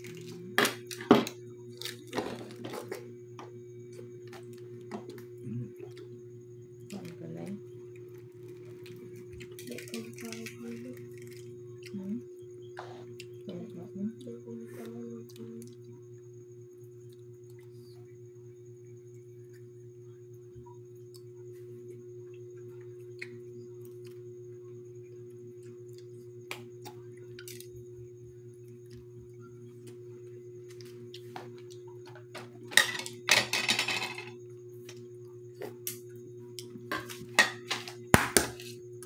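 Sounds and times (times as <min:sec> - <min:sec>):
steady low hum: 0:00.0 - 0:39.0
eggshells cracking and clicking: 0:08.4 - 0:11.9.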